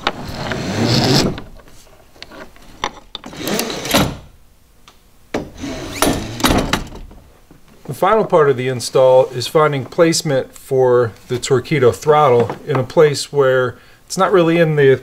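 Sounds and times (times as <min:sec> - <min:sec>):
rope rubbing scrapes: 0:00.2 - 0:02.6.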